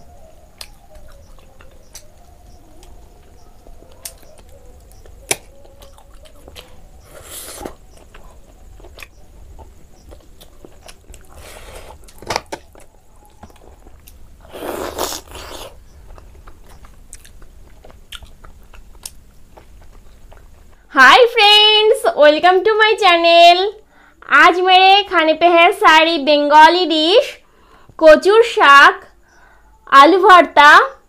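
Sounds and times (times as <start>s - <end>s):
wet chewing: 0.5s - 20.8s
lip smacks and clicks: 0.6s - 2.2s, 2.8s - 6.8s, 15.0s - 20.5s.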